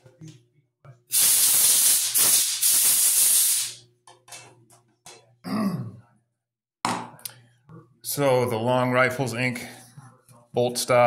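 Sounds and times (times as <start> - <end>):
pressurized air jet hissing: 1.1 - 3.8.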